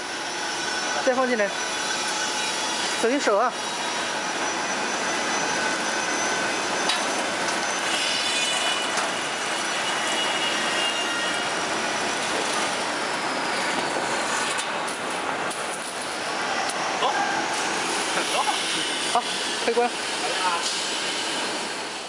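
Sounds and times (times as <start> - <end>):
roller machine running: 0.0 - 22.0
faint high squeals: 3.7 - 11.6.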